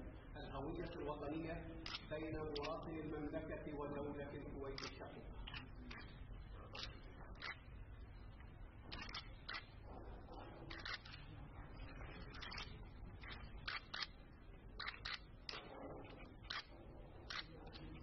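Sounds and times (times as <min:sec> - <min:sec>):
camera shutters clicking: 0:01.8 - 0:02.8, 0:04.7 - 0:06.0, 0:06.8 - 0:07.6, 0:08.9 - 0:09.8, 0:10.7 - 0:11.2, 0:12.4 - 0:14.2, 0:14.8 - 0:15.6.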